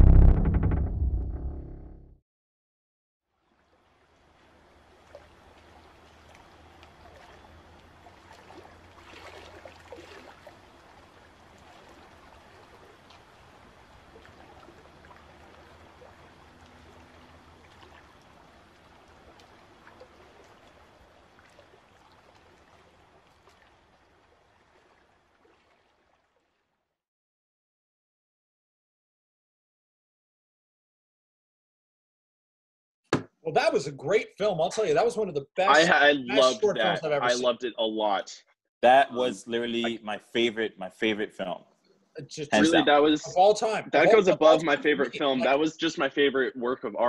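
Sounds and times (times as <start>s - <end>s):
low hum: 0.0s - 2.2s
water trickling and lapping: 3.3s - 26.9s.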